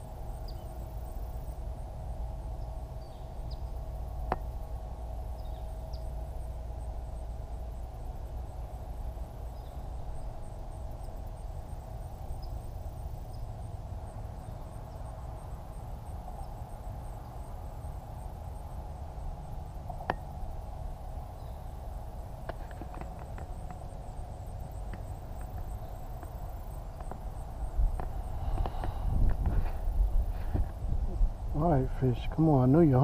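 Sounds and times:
faint steady drone: 0.0 - 33.0
insect chirping: 0.0 - 33.0
low steady rumble: 0.0 - 33.0.

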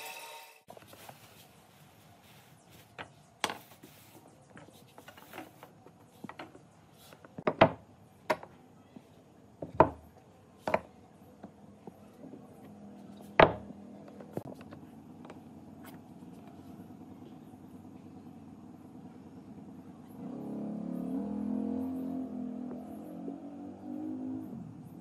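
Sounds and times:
plastic sheeting rustling: 0.7 - 3.0
wooden blocks knocking on bench: 7.4 - 8.6, 9.6 - 11.6, 13.4 - 14.4.

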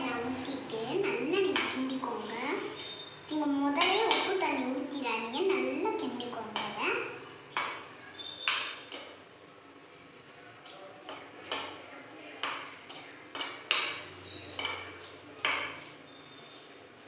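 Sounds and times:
hand mixing dough in bowl: 0.0 - 17.0.

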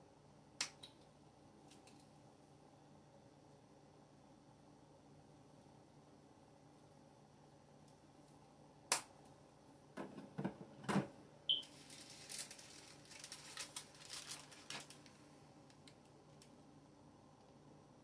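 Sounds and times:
short high beep: 11.5 - 11.7
paper rustling: 11.6 - 15.2.

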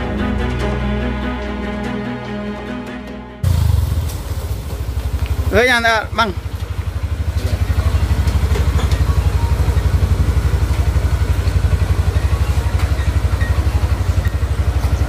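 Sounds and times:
motorcycle engine idling: 3.4 - 15.0.

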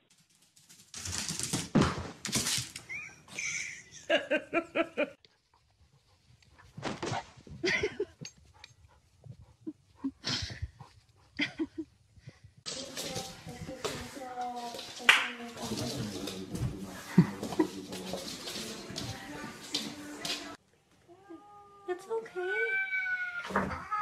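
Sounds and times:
scuffling noises: 5.4 - 20.6.

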